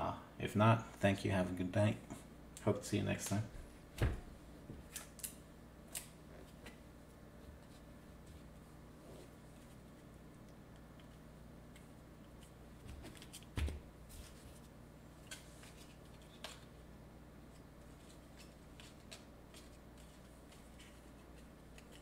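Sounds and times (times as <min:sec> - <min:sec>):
steady low hum: 0:00.0 - 0:22.0
trading cards handled: 0:11.0 - 0:16.7, 0:17.5 - 0:22.0.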